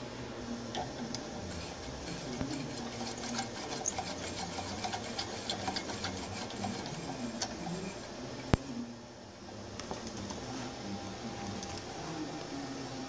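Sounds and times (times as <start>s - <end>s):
capacitor gear ticking and rubbing: 0.8s - 8.6s.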